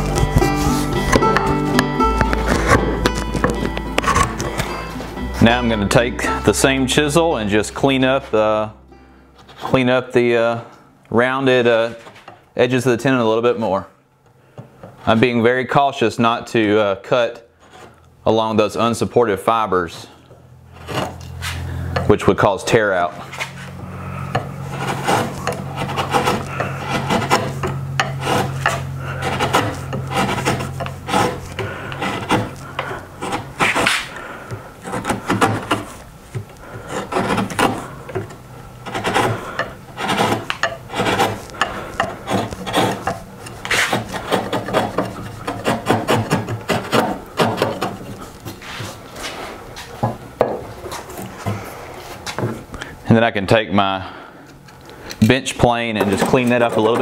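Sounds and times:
chisel scraping wood: 0.0s - 8.7s, 9.4s - 10.6s, 17.6s - 18.0s, 20.7s - 52.7s, 54.5s - 57.0s.

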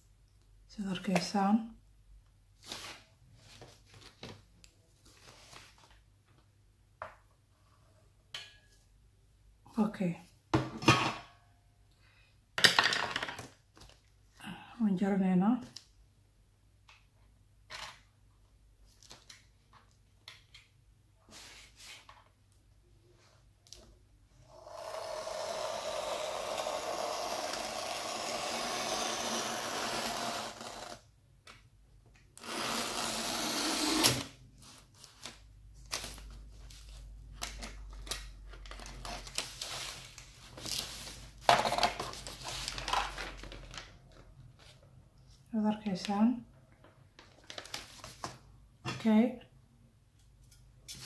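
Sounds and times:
plastic sheet crinkling: 34.6s - 44.2s, 47.2s - 48.4s.

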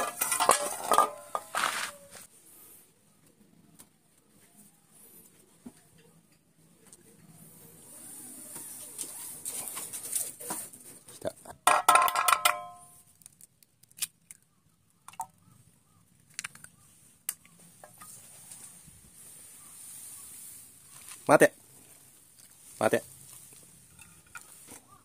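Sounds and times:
metal saucepans clattering: 0.0s - 2.0s, 11.6s - 12.8s.

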